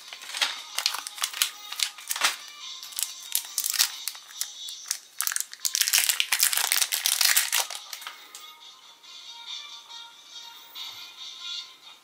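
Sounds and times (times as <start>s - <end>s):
plastic wrapper crinkling: 0.0s - 8.2s.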